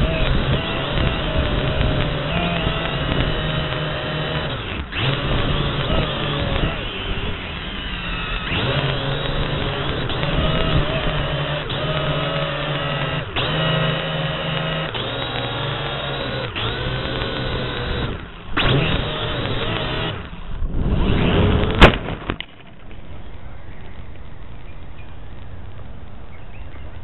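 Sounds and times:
drone propellers whining: 0.0s - 25.7s
drone hitting tree crack: 16.6s - 25.9s.

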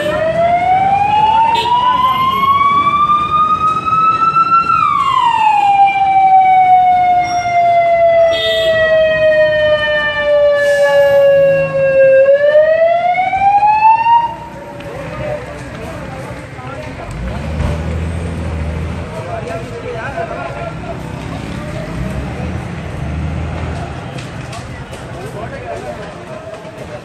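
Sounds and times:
fire engine siren wailing: 0.0s - 14.8s.

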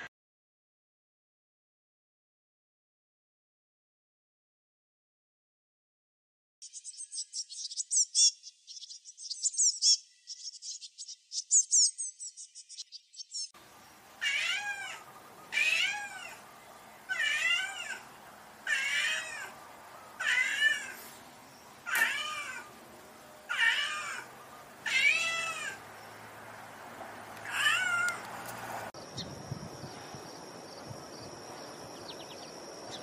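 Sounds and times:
cat high chirping: 14.2s - 16.4s, 17.1s - 19.6s, 20.2s - 21.2s, 21.8s - 22.7s, 23.5s - 25.8s, 27.4s - 28.2s
cat meowing: 14.2s - 16.4s, 17.1s - 19.6s, 20.2s - 21.1s, 21.8s - 22.8s, 23.5s - 25.8s, 27.4s - 28.3s.

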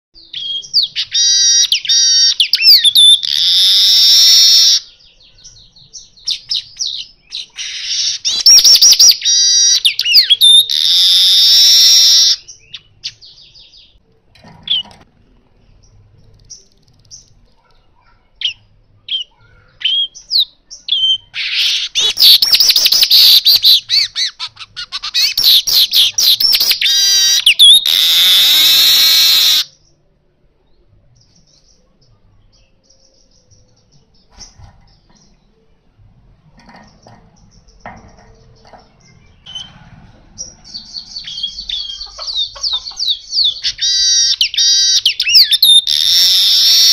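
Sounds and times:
weaver bird trilling song: 0.2s - 14.0s, 18.4s - 30.0s, 40.4s - 46.9s.

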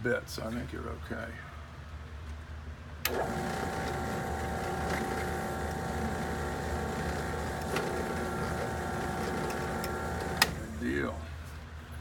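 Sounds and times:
drill press motor whining: 3.1s - 10.8s.

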